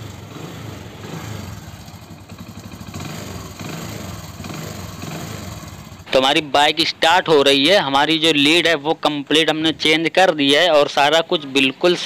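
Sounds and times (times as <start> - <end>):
motorcycle engine idling: 0.0 - 8.6.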